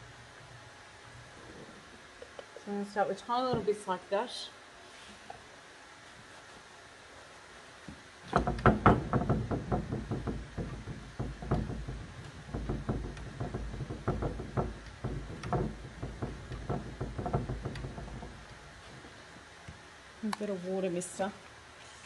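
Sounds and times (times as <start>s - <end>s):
paint dabbing on wooden cupboard: 8.3s - 19.6s.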